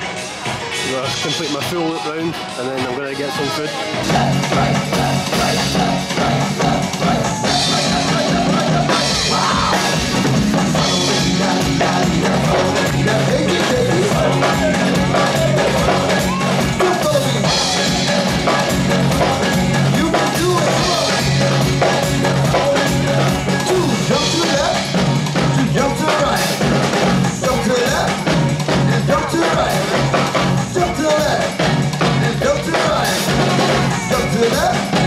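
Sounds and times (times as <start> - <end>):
drum kit beat: 0.0 - 35.0
live band playing: 0.0 - 35.0
person singing: 3.7 - 35.0.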